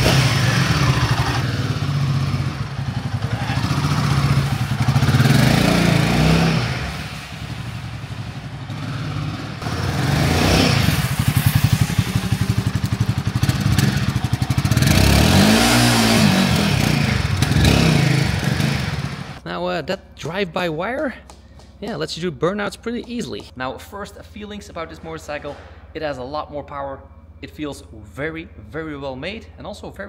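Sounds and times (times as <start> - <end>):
motorcycle engine revving: 0.0 - 19.4
rear tyre spinning: 0.0 - 19.4.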